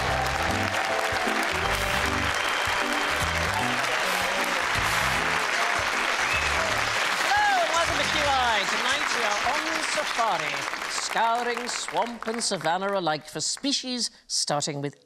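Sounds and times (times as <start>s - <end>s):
theme tune with pulsing bass: 0.0s - 7.0s
audience applauding: 0.0s - 13.2s.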